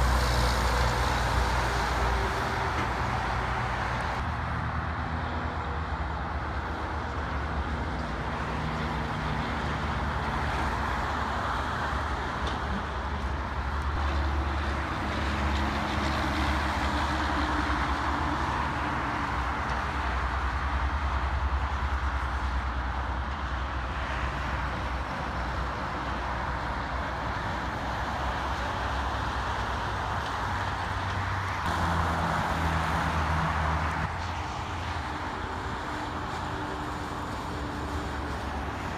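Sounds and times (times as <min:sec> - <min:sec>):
loud low engine hum: 0:00.0 - 0:38.9
truck engines droning: 0:00.0 - 0:38.9
tyre noise from passing traffic: 0:00.0 - 0:38.9.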